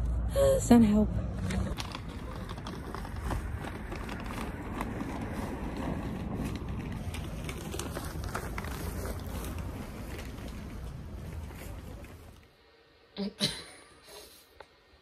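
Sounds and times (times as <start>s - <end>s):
street ambience murmur: 0.0s - 12.5s
bags rustling and knocking: 1.5s - 12.4s.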